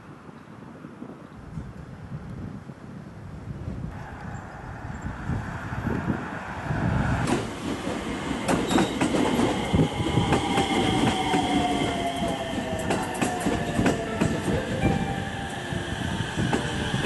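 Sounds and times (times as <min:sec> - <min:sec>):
train wheels clacking over rail joints: 0:07.2 - 0:14.6.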